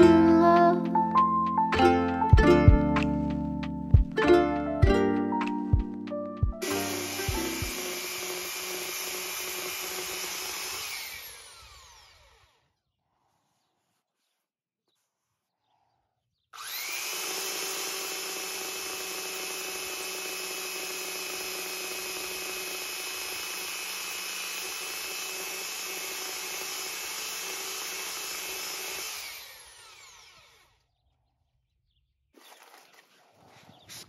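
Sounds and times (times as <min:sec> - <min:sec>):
belt sander running: 0:06.6 - 0:12.6, 0:16.6 - 0:30.7.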